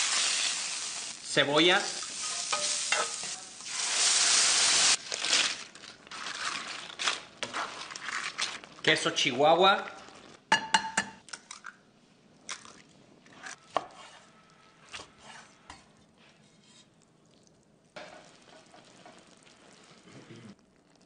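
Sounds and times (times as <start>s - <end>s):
food sizzling in a skillet: 0.0s - 5.0s, 18.0s - 20.1s.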